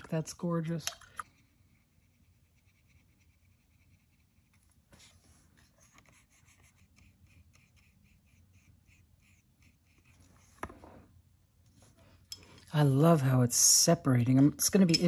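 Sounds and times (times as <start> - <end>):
paintbrush strokes on paper: 1.4 - 10.6.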